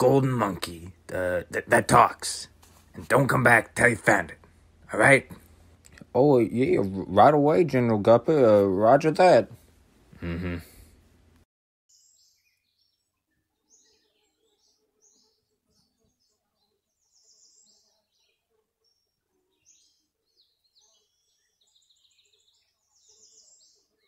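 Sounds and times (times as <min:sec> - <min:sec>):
birds chirping and trilling: 0:11.9 - 0:24.0.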